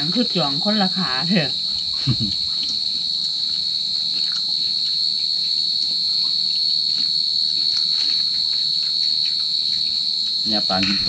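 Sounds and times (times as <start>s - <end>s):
high-pitched insect chorus: 0.0s - 11.0s.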